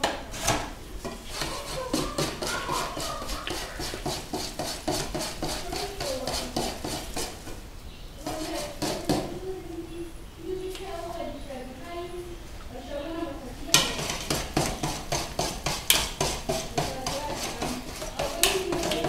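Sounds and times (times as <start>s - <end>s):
whisk tapping against bowl: 1.0s - 7.6s, 8.2s - 9.4s, 13.7s - 19.0s.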